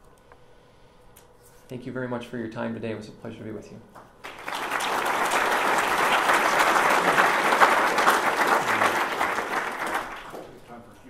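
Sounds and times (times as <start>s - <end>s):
audience applauding: 4.2s - 10.6s.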